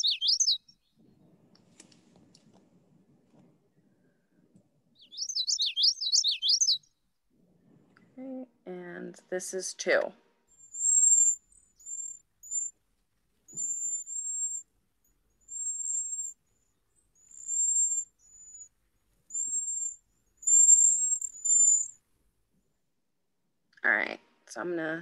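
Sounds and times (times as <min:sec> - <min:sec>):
high wispy bird whistles: 0:00.0 - 0:00.9, 0:05.0 - 0:06.9, 0:10.6 - 0:12.8, 0:13.5 - 0:14.7, 0:15.4 - 0:16.4, 0:17.2 - 0:18.7, 0:19.3 - 0:22.0.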